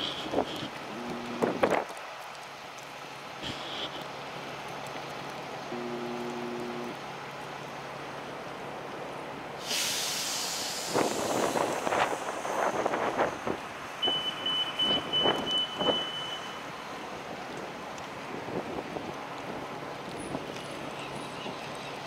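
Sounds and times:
city street traffic: 0.0 - 22.0
hiss of air: 9.6 - 13.6.

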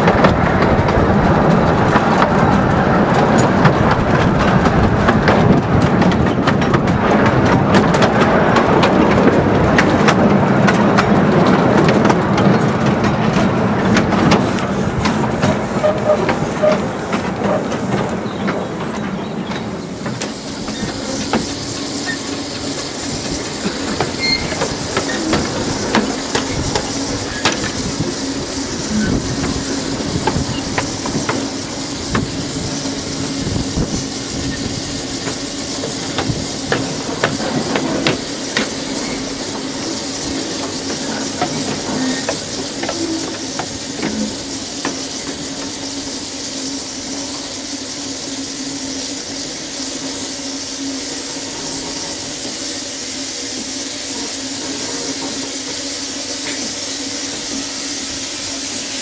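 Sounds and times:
steam locomotive hissing steam: 0.0 - 59.0.

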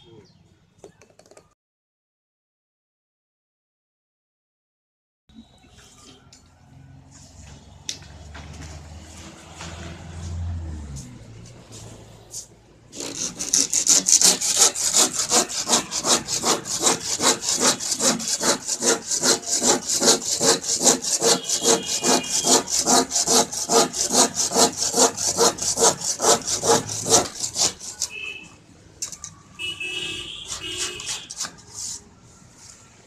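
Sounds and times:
handsaw cutting plastic panel: 12.9 - 28.2, 30.4 - 31.7.

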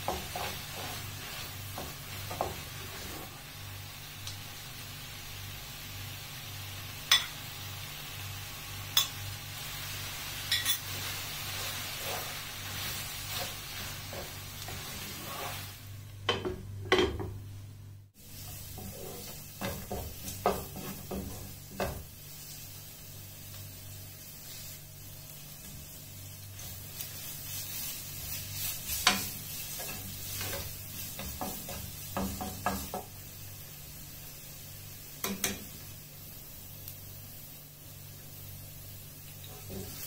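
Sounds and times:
spatula scraping a pan: 0.0 - 3.4, 10.6 - 15.8, 18.2 - 22.7, 26.6 - 33.1
food sizzling in a frying pan: 0.0 - 16.6, 18.0 - 40.0.

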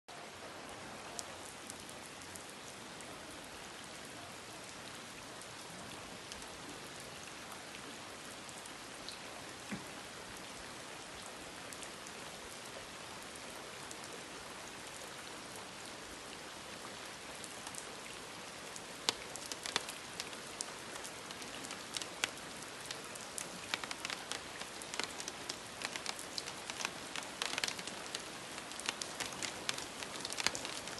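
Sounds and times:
rain on cobblestones: 0.1 - 30.9
sharp raindrop hits: 21.3 - 30.9.

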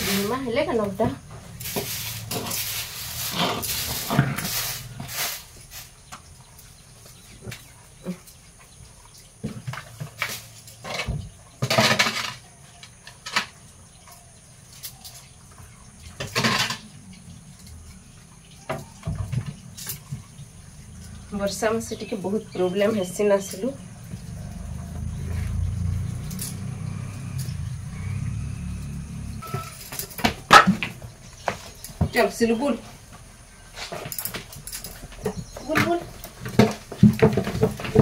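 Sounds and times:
broom swishing and water splashing: 0.0 - 11.0.

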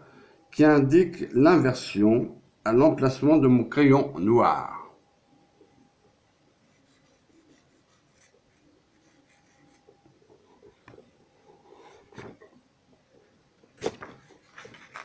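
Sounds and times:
pencil scratching on paper: 6.7 - 12.3.

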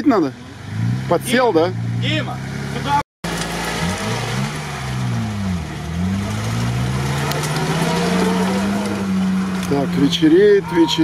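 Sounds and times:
off-road vehicle engine revving: 0.2 - 11.0.

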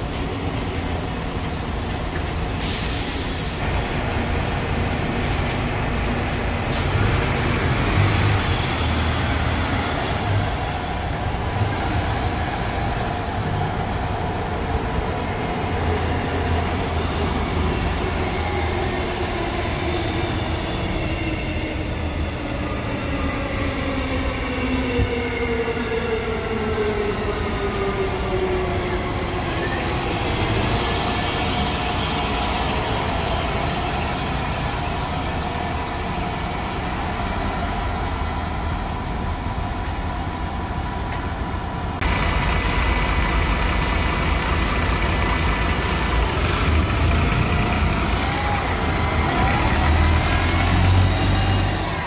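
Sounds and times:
bus driving with whine: 0.0 - 52.0
bus engine idling rumble: 37.9 - 49.9.

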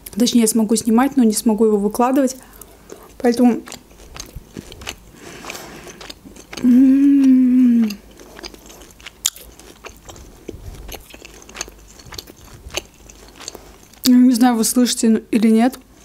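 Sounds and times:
close chewing with mouth smacks: 2.2 - 14.2
person humming mmm: 6.5 - 8.1.

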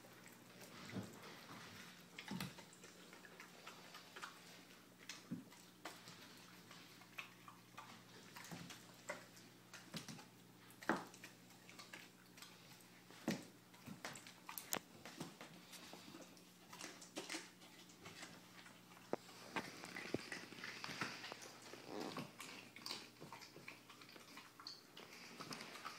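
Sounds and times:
puppy crunching bone: 0.1 - 25.9.

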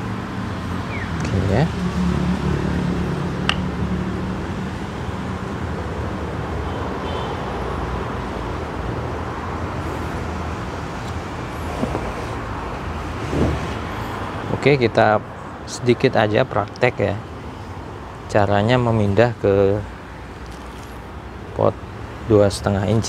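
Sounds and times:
traffic rumble: 0.0 - 23.0.

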